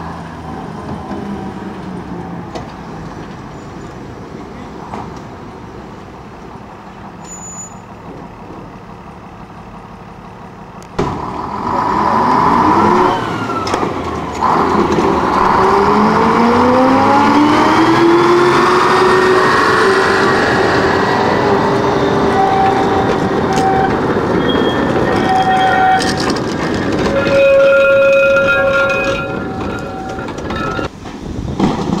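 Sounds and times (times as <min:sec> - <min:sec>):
diesel engine starting and revving: 0:08.3 - 0:27.6.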